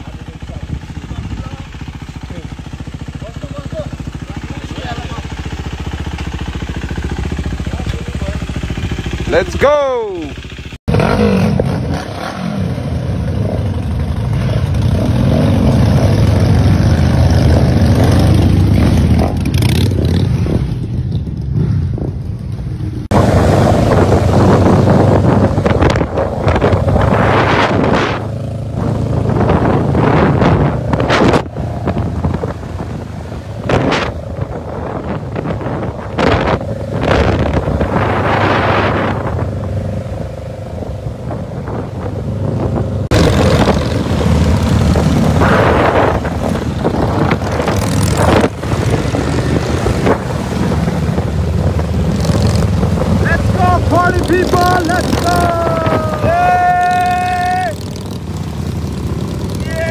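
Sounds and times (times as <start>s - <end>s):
motorcycle engines rumbling: 0.0s - 59.9s
road noise: 0.0s - 59.9s
wind buffeting microphone: 23.0s - 59.9s.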